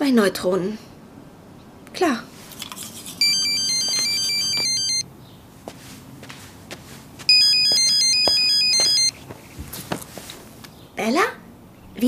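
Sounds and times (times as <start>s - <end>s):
mobile phone ringtone: 3.2s - 5.1s, 7.3s - 9.2s.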